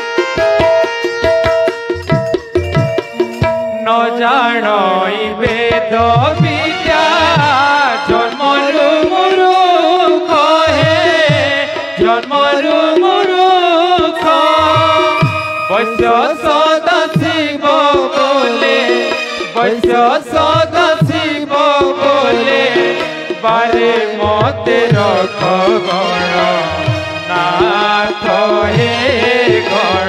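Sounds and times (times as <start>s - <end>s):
drum beats: 0.0s - 4.4s, 10.4s - 26.0s
instrumental accompaniment: 0.0s - 9.2s, 9.8s - 30.0s
person singing wavering melody: 2.1s - 5.4s, 14.2s - 17.4s.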